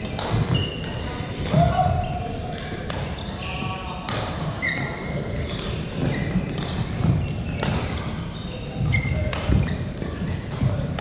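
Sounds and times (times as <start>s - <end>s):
rackets hitting shuttlecocks: 0.0s - 1.7s, 5.4s - 8.0s
low hum of large hall: 0.0s - 11.0s
shoes squeaking on floor: 0.0s - 11.0s.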